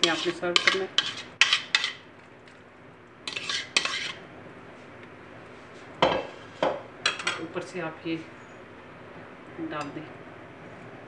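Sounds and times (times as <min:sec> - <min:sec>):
spoon scraping bowl: 0:00.0 - 0:02.0, 0:03.3 - 0:04.2.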